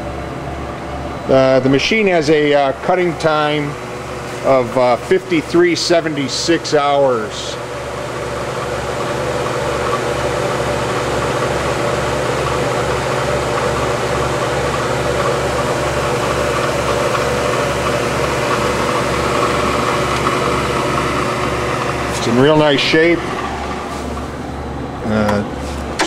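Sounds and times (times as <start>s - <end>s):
industrial machinery humming: 0.0s - 26.0s
low rhythmic throb: 1.2s - 7.7s.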